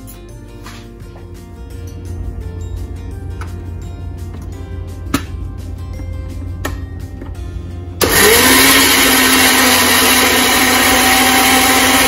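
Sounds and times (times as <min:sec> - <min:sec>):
blender motor running: 0:08.0 - 0:12.0.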